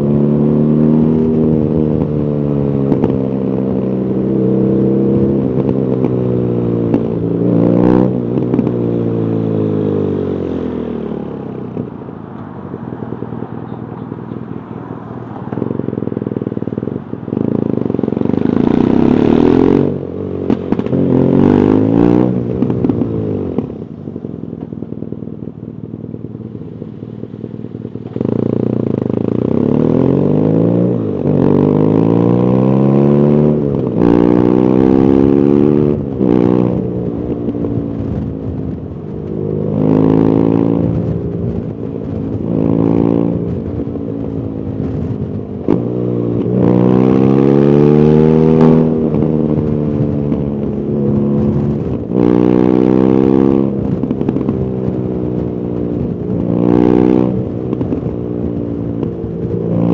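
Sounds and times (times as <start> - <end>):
motorcycle engine accelerating: 0.0 - 59.9
motorcycle engine idling: 10.2 - 18.4, 22.5 - 28.9.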